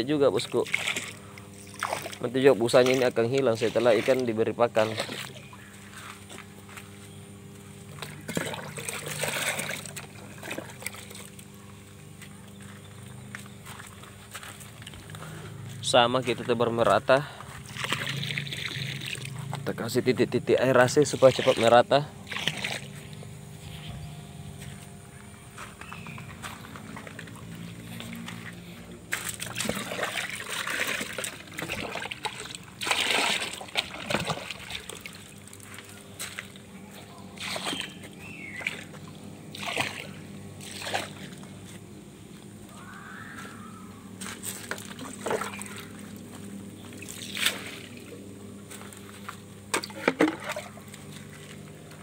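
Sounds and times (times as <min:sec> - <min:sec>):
steady low hum: 0:00.0 - 0:52.0
water splashing: 0:00.6 - 0:05.4, 0:08.0 - 0:11.5, 0:17.6 - 0:19.4, 0:21.0 - 0:23.0, 0:29.1 - 0:36.6, 0:37.4 - 0:41.4, 0:44.5 - 0:46.2, 0:46.9 - 0:48.2.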